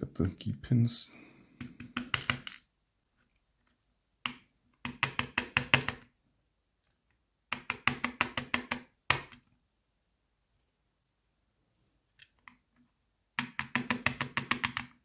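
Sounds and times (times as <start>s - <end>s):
lock pins tapping on plastic tray: 1.6s - 2.7s, 4.2s - 6.1s, 7.5s - 9.4s, 13.4s - 15.0s.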